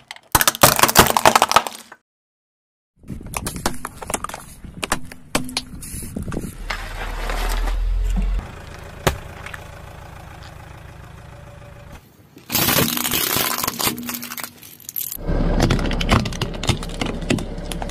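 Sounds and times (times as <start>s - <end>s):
plastic crunching under tyre: 0.0s - 2.0s, 12.3s - 17.9s.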